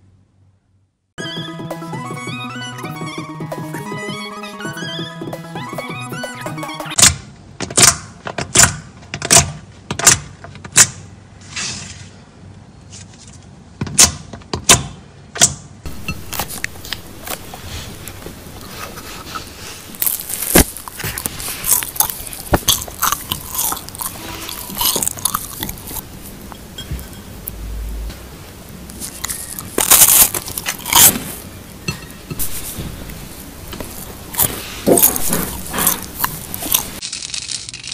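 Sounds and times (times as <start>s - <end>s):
slime air pockets popping: 15.9s - 26.4s, 28.9s - 31.4s
slime toy crunching crackle: 15.9s - 26.6s, 28.6s - 31.6s, 32.4s - 37.9s.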